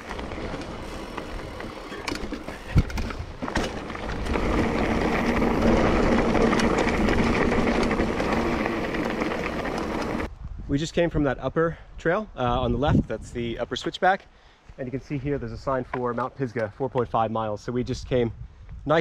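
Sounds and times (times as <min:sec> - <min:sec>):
bike tyre and brush noise: 0:00.0 - 0:10.4.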